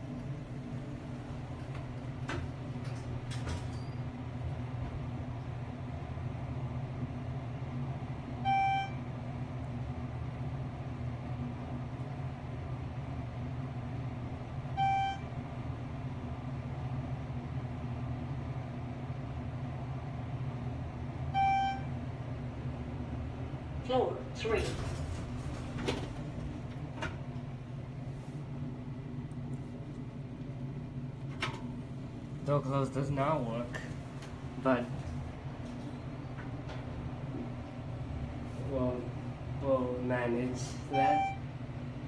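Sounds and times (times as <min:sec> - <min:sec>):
elevator hum: 0:00.0 - 0:42.0
electronic elevator chime: 0:08.4 - 0:09.0, 0:14.8 - 0:15.3, 0:21.4 - 0:21.9, 0:40.9 - 0:41.4.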